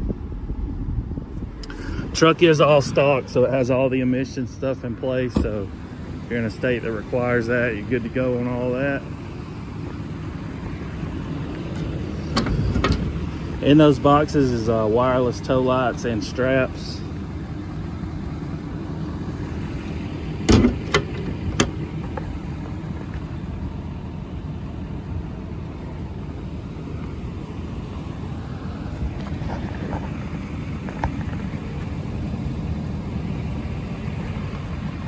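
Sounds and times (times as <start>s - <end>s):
diesel engine idling: 0.0s - 35.0s
sharp metal clunks: 12.3s - 13.2s, 20.5s - 21.8s.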